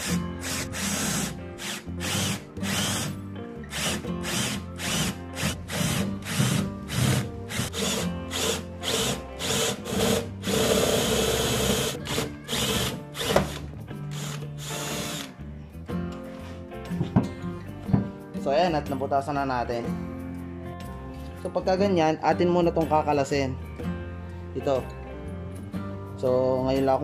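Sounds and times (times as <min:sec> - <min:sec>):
cordless drill boring through wood: 0:00.0 - 0:03.1, 0:03.7 - 0:15.3.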